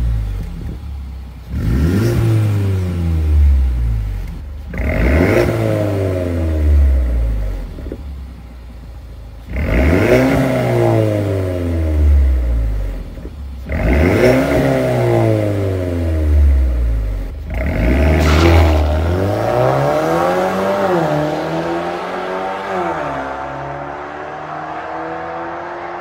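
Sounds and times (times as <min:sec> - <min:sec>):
car engine revving: 0:00.0 - 0:08.4, 0:09.4 - 0:26.0
car accelerating away: 0:13.7 - 0:26.0.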